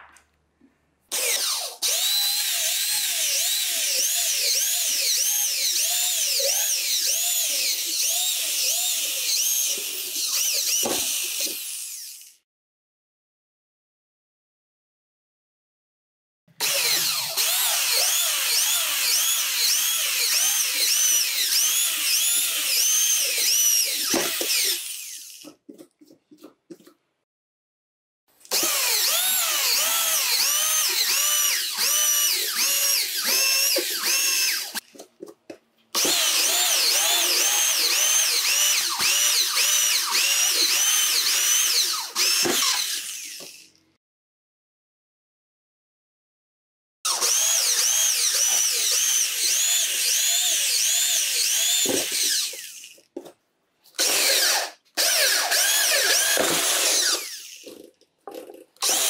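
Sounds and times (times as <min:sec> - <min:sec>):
electric drill cutting sheet metal: 0:01.1 - 0:12.4, 0:16.6 - 0:25.4, 0:28.5 - 0:34.8, 0:36.0 - 0:43.8, 0:47.1 - 0:53.0, 0:54.0 - 0:57.9, 0:58.8 - 0:59.0.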